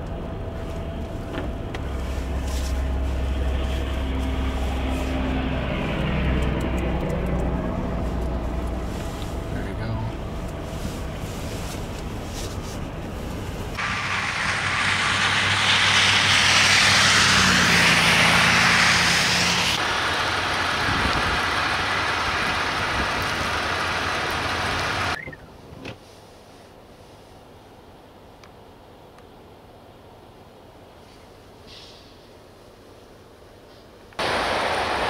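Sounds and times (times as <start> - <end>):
truck engines idling: 0.0 - 25.2, 34.2 - 35.0
traffic rumble: 0.0 - 35.0
tyres hissing on slushy pavement: 13.8 - 25.2, 34.2 - 35.0.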